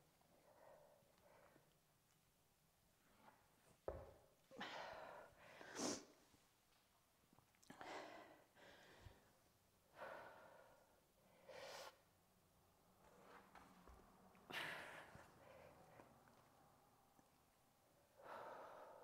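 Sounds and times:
person breathing heavily: 18.2 - 19.0.

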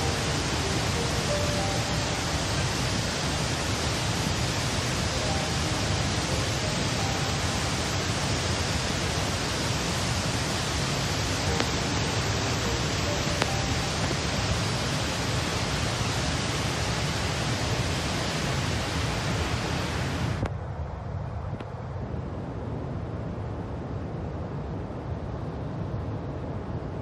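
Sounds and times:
waterfall rushing: 0.0 - 20.4.

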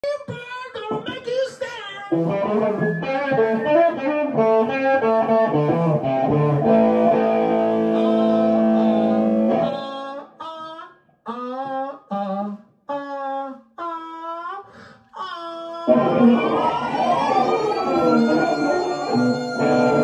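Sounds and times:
guitar playing: 2.1 - 9.9, 15.9 - 20.0.

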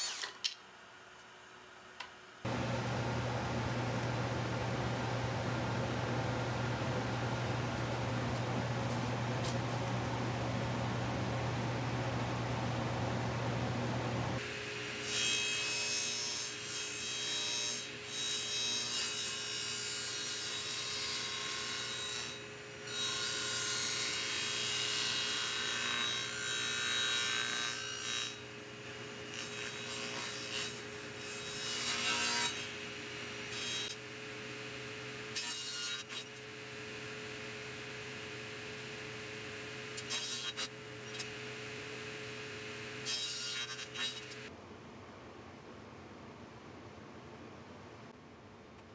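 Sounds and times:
table saw cutting plywood: 0.0 - 0.4, 35.2 - 38.4, 39.8 - 44.5.

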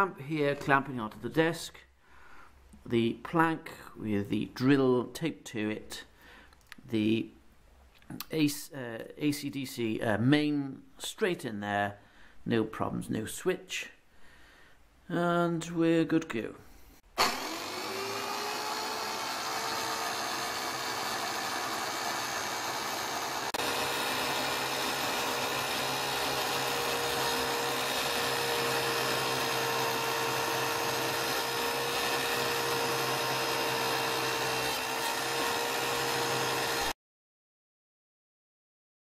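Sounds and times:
electric drill whining: 17.2 - 37.0.

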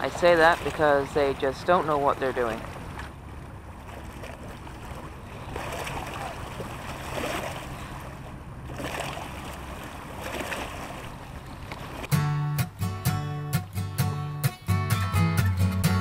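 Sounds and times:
waves splashing against rocks: 0.0 - 12.2.

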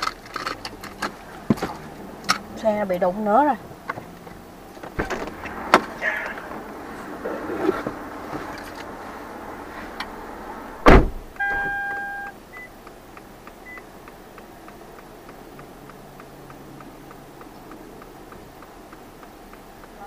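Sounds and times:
loud thump: 4.9 - 8.6, 10.8 - 11.8
light even ticking: 11.2 - 20.0
electronic beep: 11.4 - 12.7
scattered clicks: 12.2 - 20.0.

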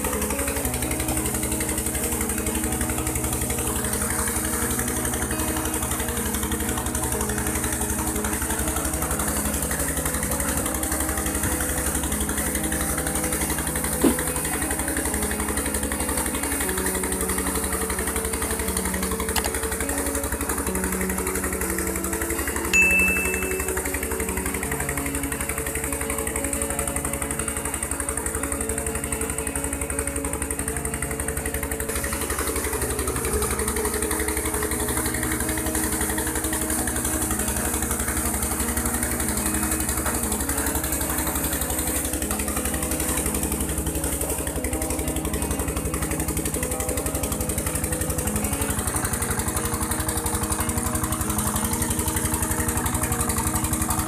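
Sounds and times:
water gushing from pipe: 0.0 - 22.8, 23.6 - 54.0
diesel engine running: 0.0 - 54.0
short high tone: 22.8 - 23.8.

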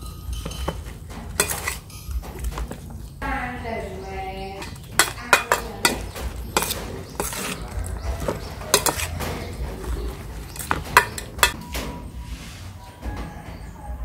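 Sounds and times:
spoon clinking against metal bowl: 0.0 - 2.8, 4.6 - 11.7
salad rustling: 0.4 - 3.2, 4.6 - 11.6.

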